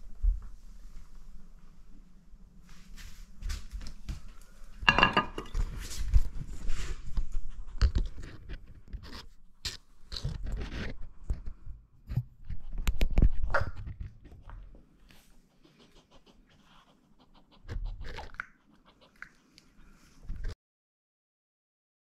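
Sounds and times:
plate clatter: 0:04.8 - 0:05.6
dog chewing and crunching: 0:15.6 - 0:19.8.

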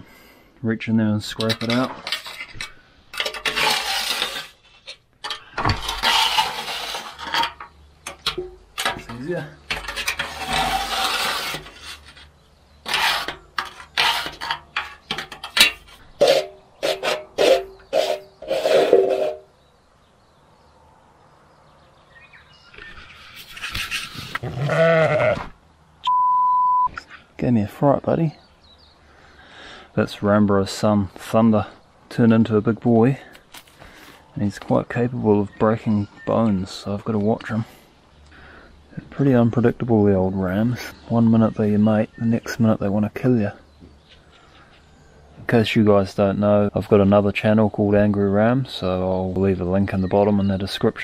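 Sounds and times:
metal scraper scraping steel case: 0:01.3 - 0:19.5
ram bleating: 0:24.4 - 0:25.5.

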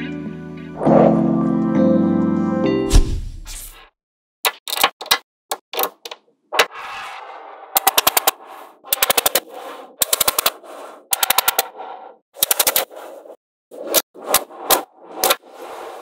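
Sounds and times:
magnet balls clicking together: 0:07.8 - 0:09.4, 0:10.0 - 0:10.6.

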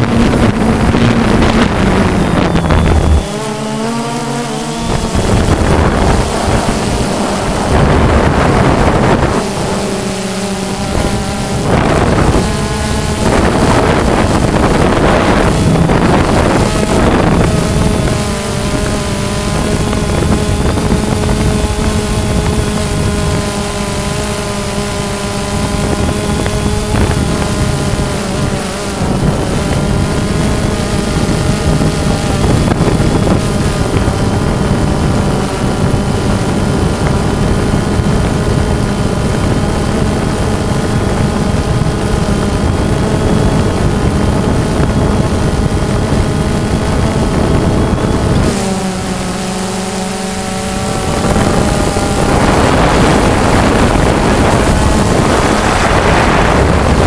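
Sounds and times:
drone propellers whining: 0:00.0 - 0:57.0
wind on microphone: 0:00.0 - 0:57.0.

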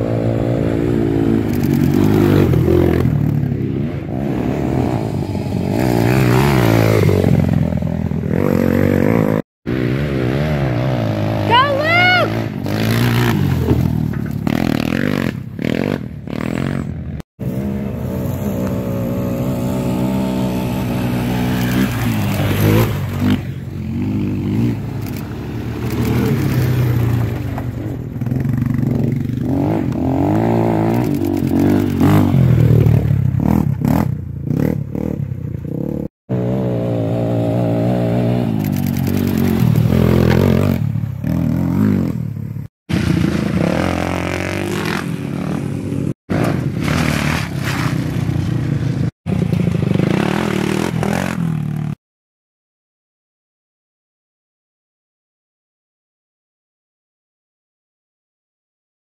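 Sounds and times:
quad engines revving: 0:04.1 - 0:42.2, 0:42.9 - 0:48.6, 0:49.3 - 0:52.0.

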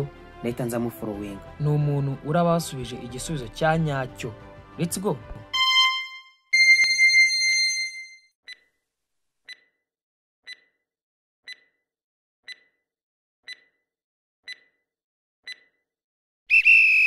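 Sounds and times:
timer ticking: 0:09.5 - 0:09.7, 0:10.5 - 0:10.8, 0:11.5 - 0:11.8, 0:12.5 - 0:12.8, 0:13.5 - 0:13.8, 0:14.5 - 0:14.8, 0:15.5 - 0:15.8.

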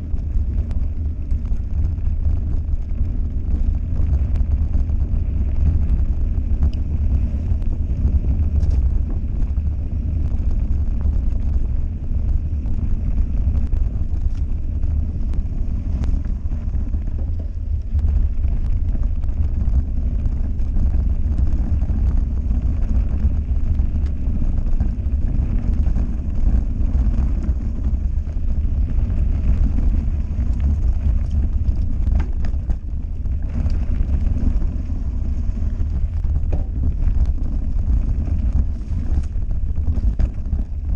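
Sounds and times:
bike clicking and rattling: 0:00.0 - 0:40.9
tyres on loose gravel: 0:00.0 - 0:40.9
wind buffeting microphone: 0:00.0 - 0:40.9.

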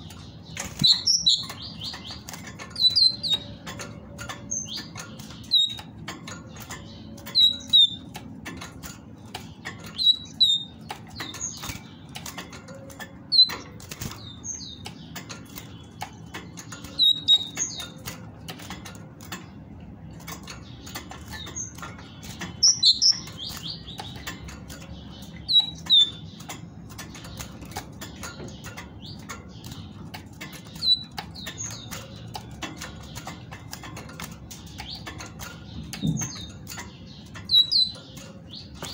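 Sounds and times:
bird wings flapping in cage: 0:10.9 - 0:14.4.

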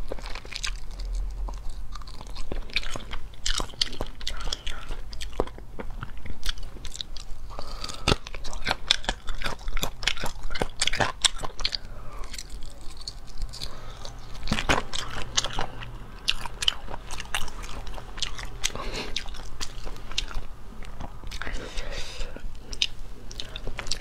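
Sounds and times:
biting and chewing chicken feet: 0:00.0 - 0:24.0.

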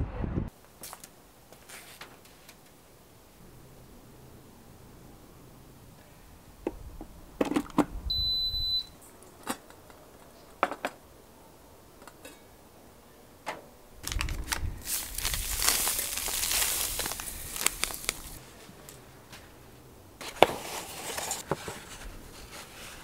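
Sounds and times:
induction hob beep: 0:08.1 - 0:09.0
metal pot and lid clinking: 0:12.0 - 0:12.6
plastic bag crinkling: 0:14.0 - 0:18.4.

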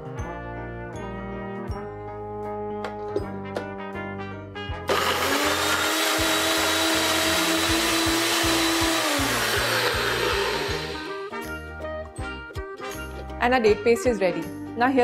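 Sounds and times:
blender motor whine: 0:04.9 - 0:11.3.

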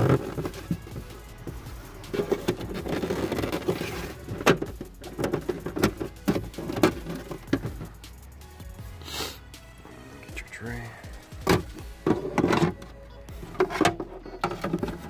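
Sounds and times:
plastic scraping against plastic: 0:00.0 - 0:01.3, 0:02.0 - 0:08.0, 0:11.3 - 0:15.0.

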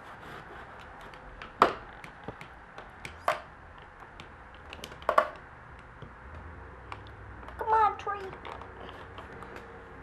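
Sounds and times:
light plastic clicking and tapping: 0:00.8 - 0:07.6
sharp plastic knocks: 0:00.8 - 0:09.7.

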